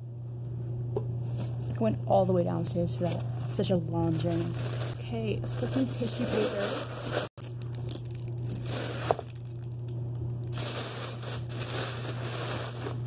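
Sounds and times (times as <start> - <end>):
steady low hum: 0.0 - 13.0
tissue paper crinkling: 4.0 - 9.6, 10.5 - 13.0.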